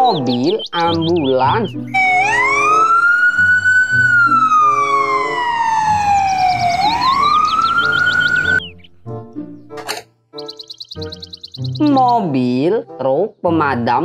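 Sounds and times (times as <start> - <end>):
light background music: 0.0 - 14.0
ambulance siren wailing: 1.8 - 8.7.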